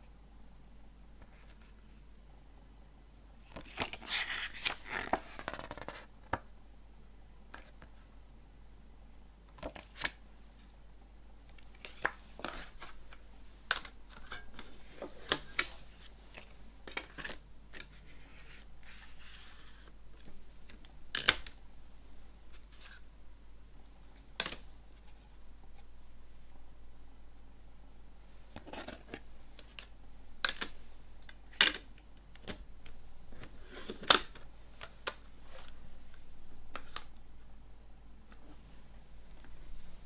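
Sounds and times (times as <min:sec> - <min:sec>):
paper booklet rustling: 0:03.6 - 0:06.1.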